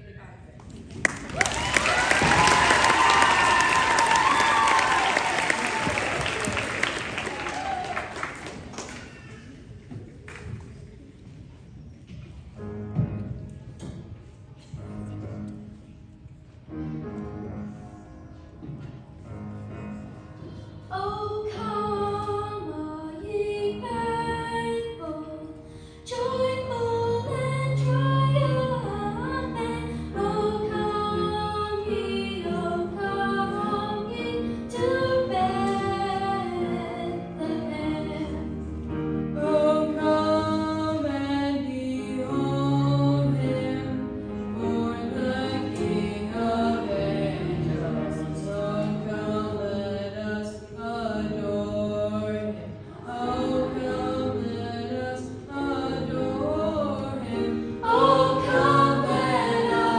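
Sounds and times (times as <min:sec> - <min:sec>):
girl singing: 0:20.8 - 0:38.5.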